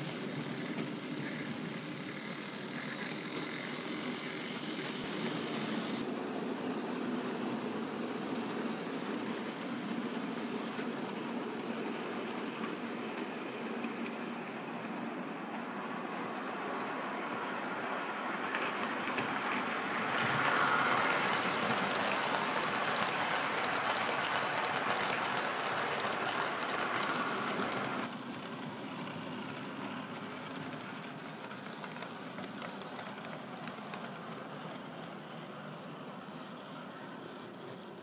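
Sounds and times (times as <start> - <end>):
model train wheels rattling on rails: 0.0 - 6.0, 18.3 - 35.5.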